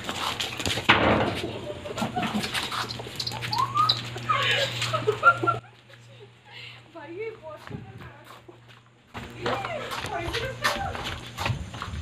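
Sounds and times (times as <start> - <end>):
scuffling noise: 2.1 - 5.2
rat squeaking: 2.7 - 4.2.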